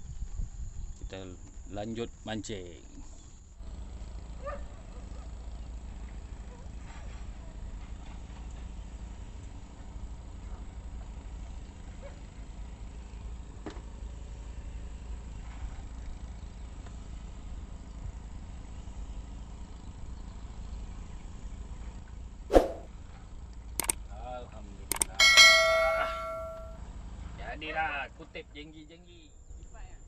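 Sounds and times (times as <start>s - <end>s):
low outdoor rumble: 0.0s - 30.0s
faint ticks: 23.5s - 24.0s
sharp ringing knock: 24.9s - 26.8s.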